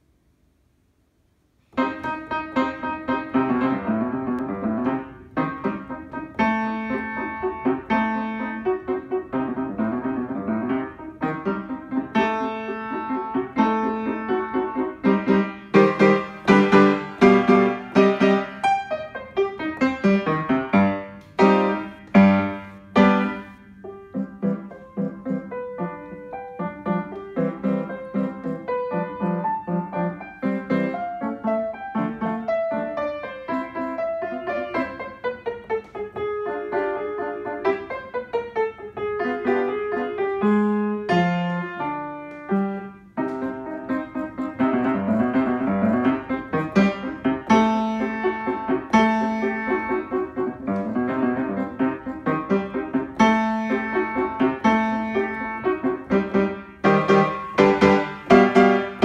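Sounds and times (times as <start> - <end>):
acoustic piano playing: 1.6 - 59.0.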